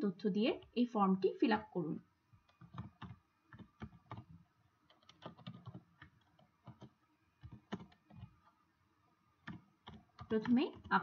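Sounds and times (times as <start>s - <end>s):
computer keyboard typing: 2.4s - 8.6s, 9.4s - 11.0s.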